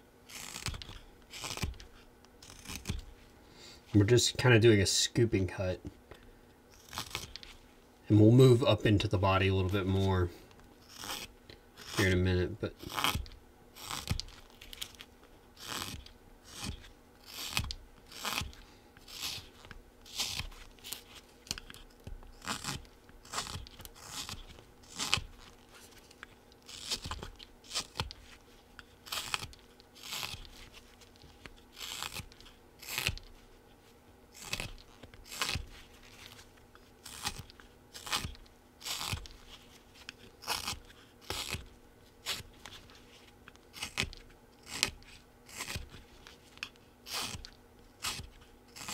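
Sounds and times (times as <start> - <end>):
carving knife slicing wood: 0.3 - 3.1, 6.8 - 7.4, 10.8 - 12.2, 12.8 - 14.9, 15.6 - 21.8, 22.4 - 25.6, 26.7 - 28.2, 29.0 - 30.7, 31.7 - 33.3, 34.4 - 36.4, 37.0 - 39.4, 40.4 - 42.5, 43.7 - 46.0, 46.6 - 48.9.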